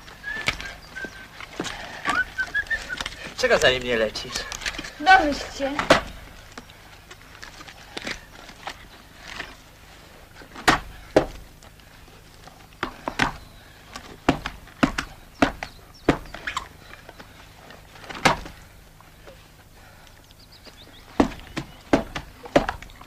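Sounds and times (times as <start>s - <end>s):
sharp knocks and thumps: 5.7s - 6.3s, 10.5s - 11.5s, 12.8s - 16.6s, 18.0s - 18.6s, 21.1s - 23.0s.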